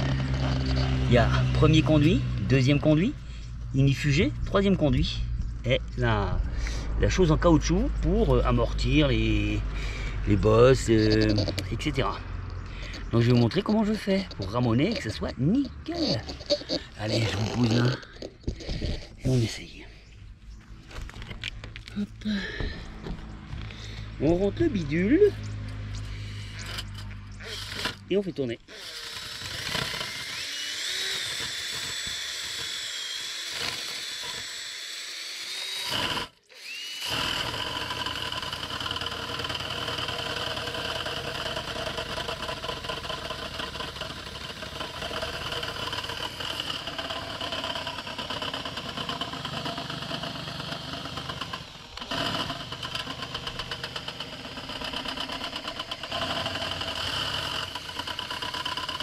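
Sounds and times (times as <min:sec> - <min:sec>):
cordless drill motor whine: 0:00.0 - 0:01.5, 0:26.0 - 0:28.1, 0:28.7 - 0:59.0.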